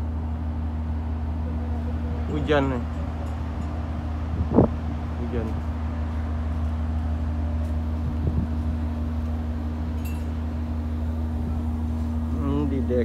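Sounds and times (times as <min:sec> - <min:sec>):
ship machinery drone: 0:00.0 - 0:13.0.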